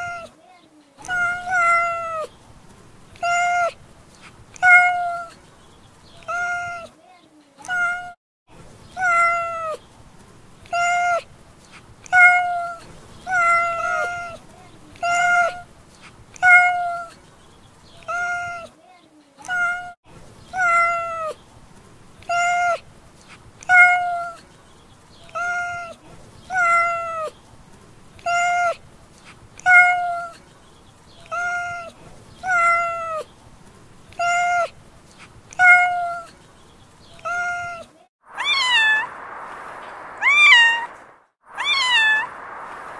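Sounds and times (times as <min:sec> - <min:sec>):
cat meowing: 0:01.0 - 0:02.3, 0:04.6 - 0:05.3, 0:07.6 - 0:08.2, 0:09.0 - 0:09.8, 0:12.1 - 0:14.4, 0:16.4 - 0:17.1, 0:19.4 - 0:20.0, 0:20.6 - 0:21.3, 0:23.6 - 0:24.4, 0:26.5 - 0:27.3, 0:29.6 - 0:30.4, 0:31.2 - 0:33.2, 0:35.5 - 0:36.3, 0:37.2 - 0:39.2, 0:39.9 - 0:41.0, 0:41.6 - 0:42.5.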